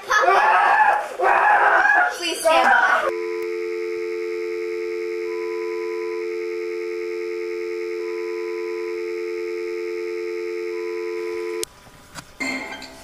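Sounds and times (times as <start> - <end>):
steady two-note hum: 3.1 - 11.6
high beep: 5.1 - 11.6.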